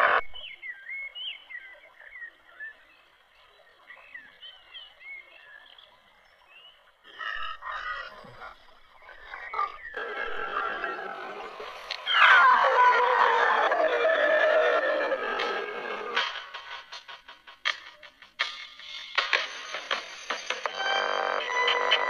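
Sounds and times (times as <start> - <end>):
high chirping animal calls: 7.1 - 16.2.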